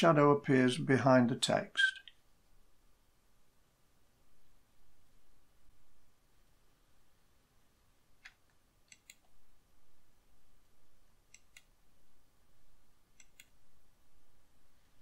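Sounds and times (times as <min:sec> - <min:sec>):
computer mouse clicks: 0:08.2 - 0:09.4, 0:11.3 - 0:11.8, 0:13.1 - 0:13.6.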